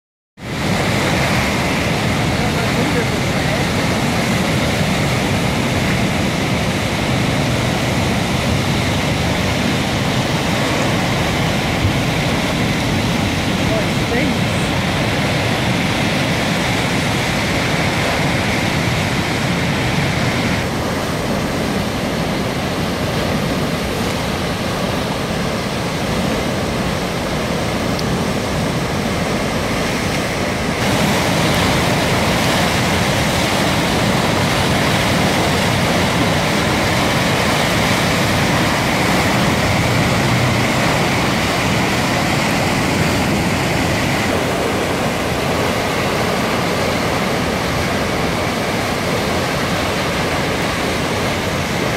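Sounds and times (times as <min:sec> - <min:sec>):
white water rushing over a weir: 0:00.4 - 0:51.9.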